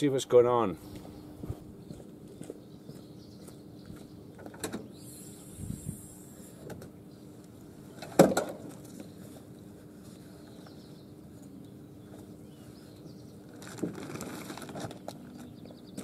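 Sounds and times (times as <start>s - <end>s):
faint steady hum: 0.2s - 16.0s.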